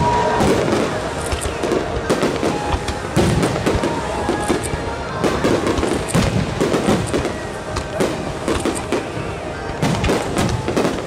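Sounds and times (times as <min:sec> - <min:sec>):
firework bangs and crackling: 0:00.0 - 0:11.0.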